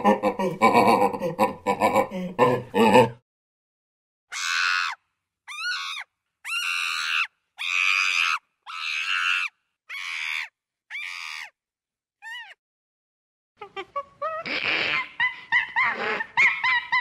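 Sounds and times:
chimpanzee screaming: 0:04.3 - 0:11.6.

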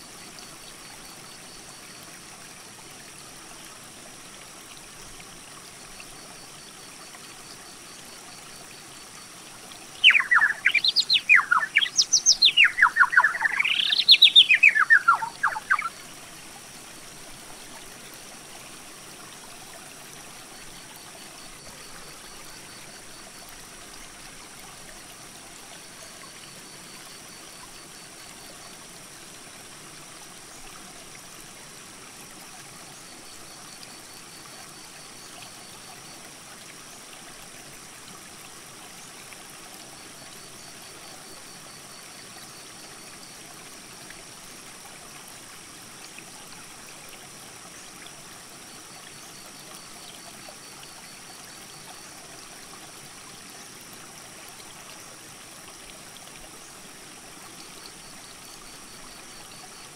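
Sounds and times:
creek rushing over rocks: 0:10.0 - 0:20.4.

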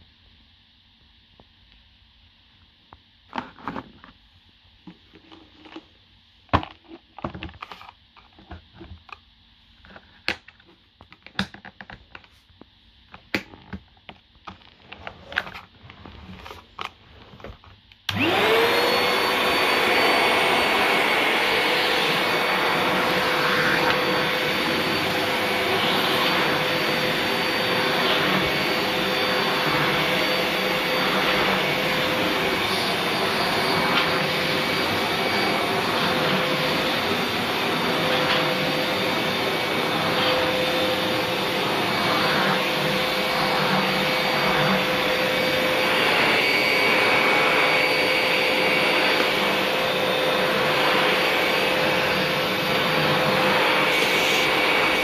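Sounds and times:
vacuum cleaner motor running: 0:14.6 - 0:55.0.

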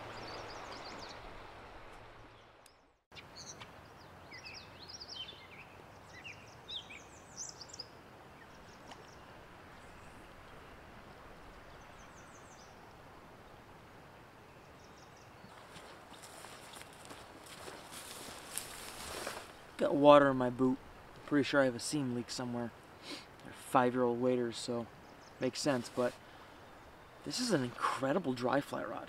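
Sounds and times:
flowing stream water: 0:00.0 - 0:02.9, 0:24.5 - 0:29.0
songbirds chirping and trilling: 0:00.0 - 0:20.0, 0:21.9 - 0:29.0.

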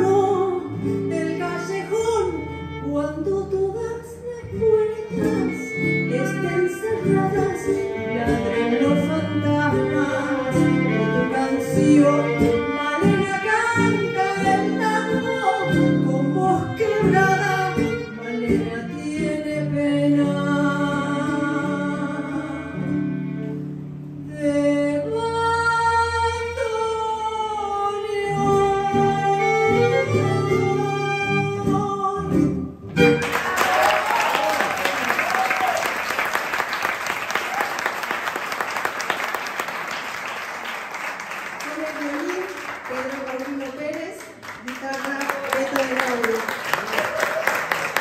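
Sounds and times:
woman singing tango: 0:00.0 - 0:23.3, 0:24.1 - 0:33.2
violin: 0:00.0 - 0:33.7
acoustic guitar: 0:00.0 - 0:36.9
audience applauding: 0:33.1 - 0:48.0.

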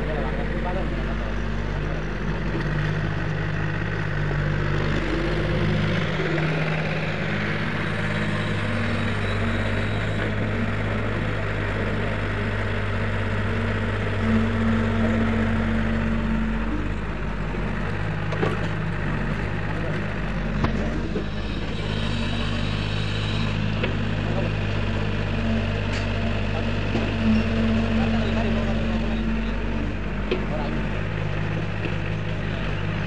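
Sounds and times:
excavator diesel engine running: 0:00.0 - 0:33.0.

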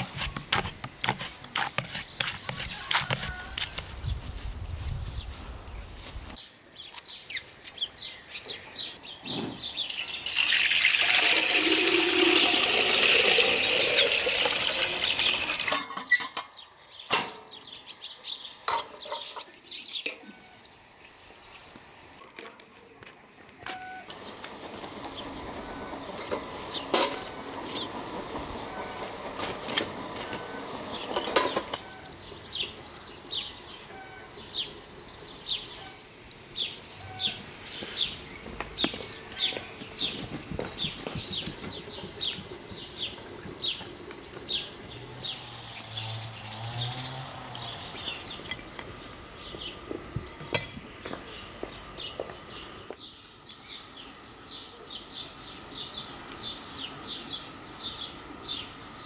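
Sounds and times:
small birds chirping: 0:00.8 - 0:10.5, 0:30.0 - 0:59.0
water pouring: 0:09.9 - 0:15.9.

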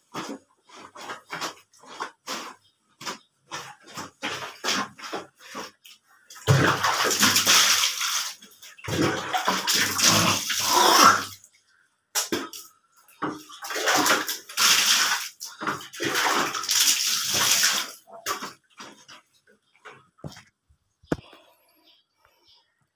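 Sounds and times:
water splashing on blanket: 0:03.5 - 0:11.3, 0:13.3 - 0:19.2.

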